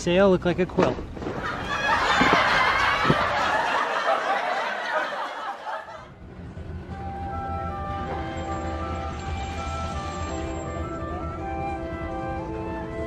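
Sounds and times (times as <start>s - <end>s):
people laughing: 1.4s - 6.1s
music: 6.2s - 13.0s.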